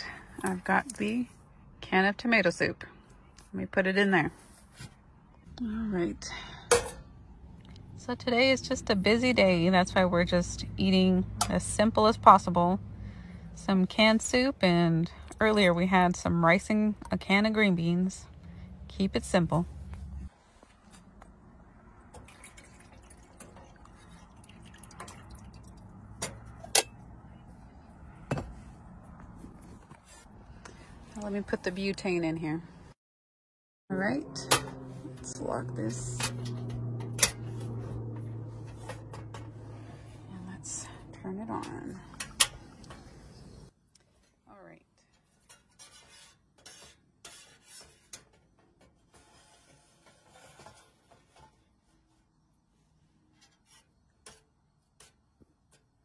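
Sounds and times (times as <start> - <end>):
thick soup plopping and dripping: 22.2 - 25.9
spoon scraping a saucepan: 45.4 - 52.1.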